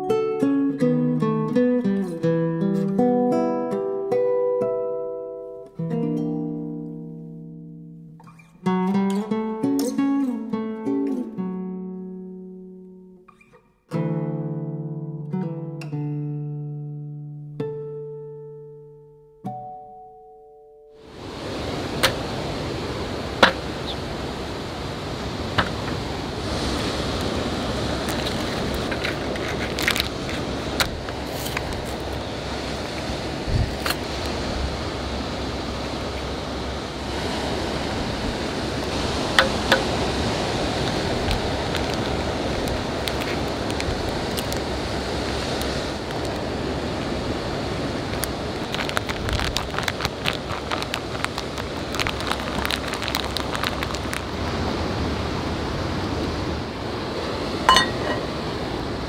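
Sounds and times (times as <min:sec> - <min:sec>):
sea waves washing on shore: 0:21.0 - 0:59.0
plastic pouch rustling: 0:28.1 - 0:30.5, 0:48.6 - 0:54.4
egg cracking: 0:48.6 - 0:54.3.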